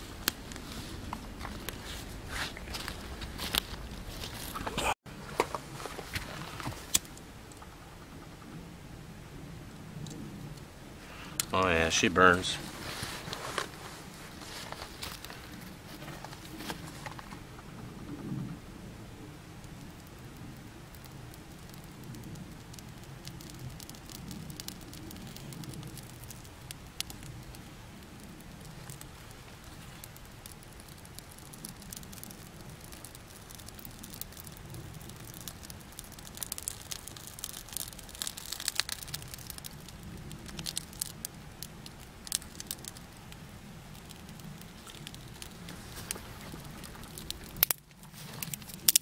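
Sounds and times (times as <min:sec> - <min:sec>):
fire crackling and snapping: 0:00.0 - 0:49.0.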